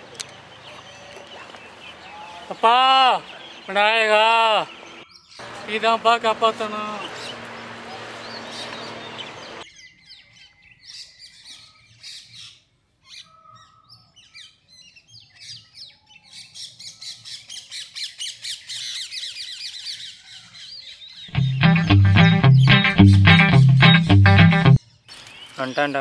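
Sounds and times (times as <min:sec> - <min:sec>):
birds chirping: 0:00.0 - 0:12.0, 0:18.5 - 0:26.0.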